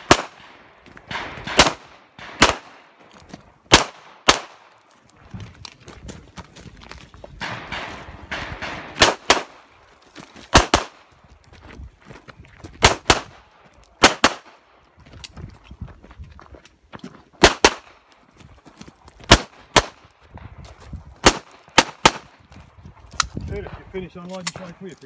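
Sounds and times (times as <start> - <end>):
pistol shots: 0.0 - 3.0, 3.7 - 4.8, 7.4 - 9.7, 10.5 - 11.1, 12.8 - 13.4, 14.0 - 14.6, 17.4 - 18.0, 19.3 - 20.0, 21.2 - 22.3.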